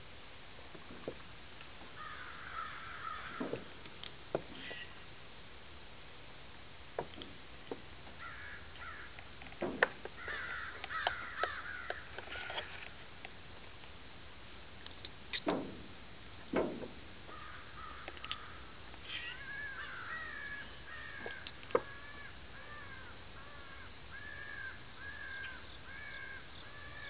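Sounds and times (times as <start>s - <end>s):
insect hiss: 0.0s - 27.0s
crow cawing: 2.0s - 3.7s, 8.2s - 9.1s, 10.2s - 12.6s, 17.3s - 18.6s, 19.2s - 27.0s.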